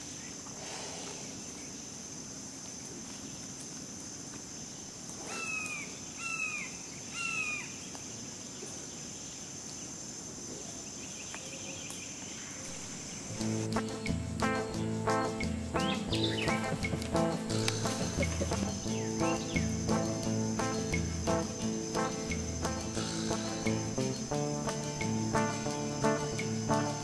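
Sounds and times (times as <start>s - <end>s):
swamp ambience: 0.0s - 27.0s
bird calls: 5.3s - 8.0s, 11.0s - 27.0s
high-pitched insect buzz: 12.7s - 27.0s.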